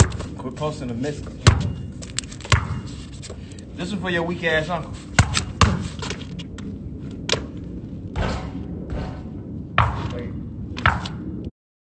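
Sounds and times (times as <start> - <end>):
steady low rumble: 0.0 - 11.5
basketball thuds: 1.4 - 3.4, 5.2 - 6.2, 9.8 - 10.2.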